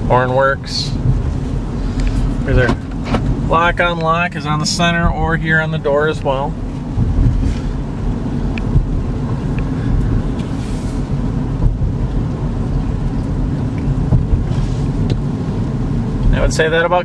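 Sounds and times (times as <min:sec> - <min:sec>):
car engine and tyre rumble: 0:00.0 - 0:17.0.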